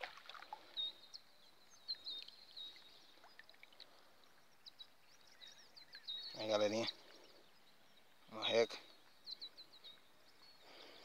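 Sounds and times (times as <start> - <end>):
water sloshing and dripping: 0.0 - 0.9, 1.8 - 4.5
small water splashes: 0.0 - 1.1, 1.8 - 5.0.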